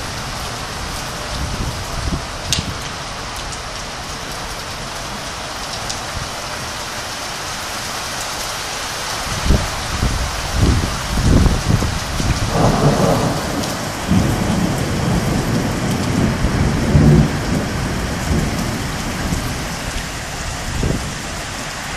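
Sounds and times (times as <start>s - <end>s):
heavy rain pouring: 0.0s - 21.9s
thunder rumbling: 9.4s - 21.9s.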